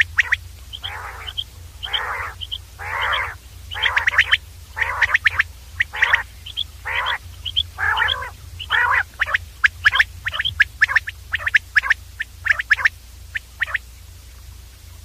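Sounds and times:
quail calling: 0:00.0 - 0:13.9
steady low hum: 0:00.0 - 0:15.0.

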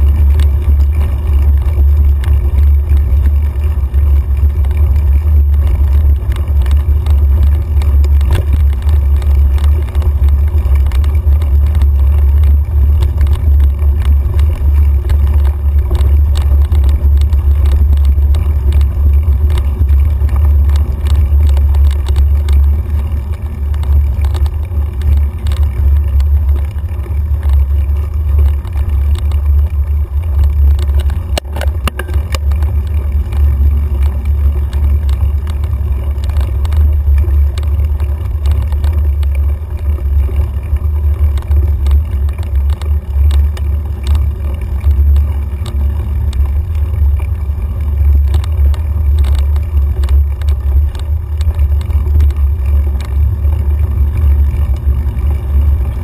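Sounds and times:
bike clicks and rattles: 0:00.0 - 0:56.0
wind rumble on microphone: 0:00.0 - 0:56.0.

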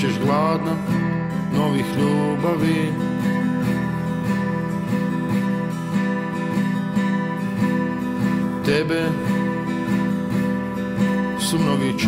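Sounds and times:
person singing: 0:00.0 - 0:04.2, 0:08.2 - 0:12.0
acoustic guitar strumming: 0:00.0 - 0:12.0.

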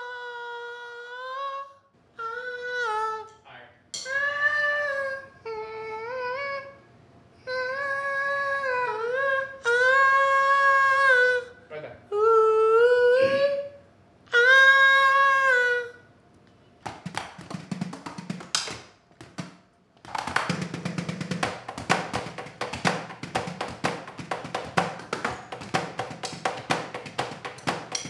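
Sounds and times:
electronic drum kit hits: 0:20.1 - 0:28.0.

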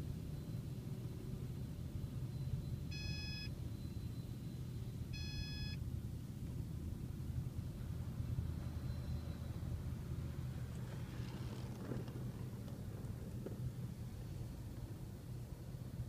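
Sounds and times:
short electronic beeps: 0:02.3 - 0:05.8
car wash equipment rumble: 0:06.8 - 0:16.0.

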